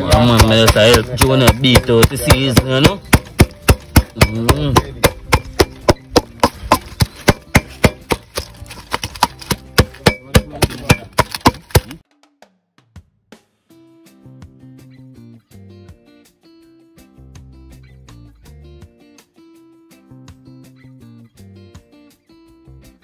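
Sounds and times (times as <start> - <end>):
person speaking: 0.0 - 5.4
knife chopping on cutting board: 0.0 - 12.0.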